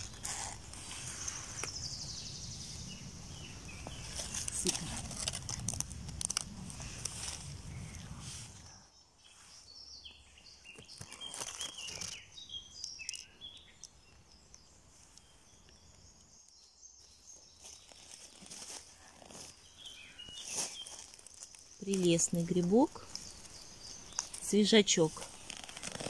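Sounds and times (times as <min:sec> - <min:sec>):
small birds singing: 0:00.0 - 0:26.0
dry leaves crunching underfoot: 0:03.4 - 0:08.7, 0:10.6 - 0:12.4, 0:16.6 - 0:26.0.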